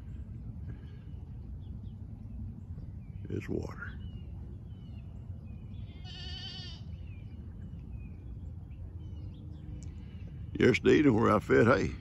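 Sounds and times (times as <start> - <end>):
low background rumble: 0.0 - 12.0
goat bleating: 6.0 - 6.8.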